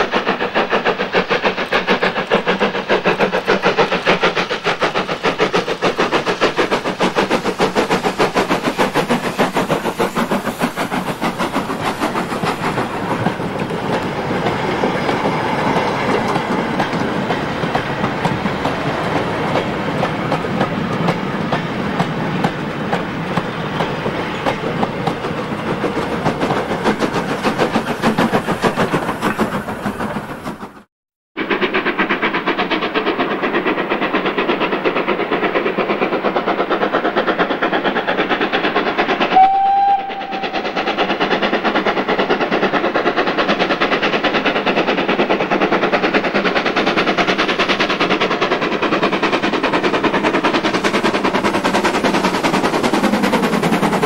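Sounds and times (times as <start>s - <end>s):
train wagons rumbling and clacking: 0.0s - 30.9s, 31.5s - 54.0s
steam locomotive exhaust beats: 0.0s - 54.0s
steam whistle: 39.3s - 40.8s.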